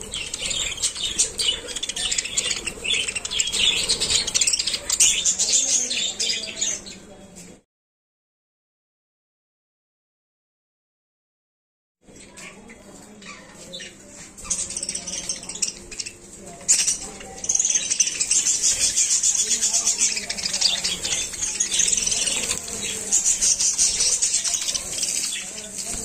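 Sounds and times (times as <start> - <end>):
budgerigars chattering: 0.0 - 7.0, 13.3 - 26.0.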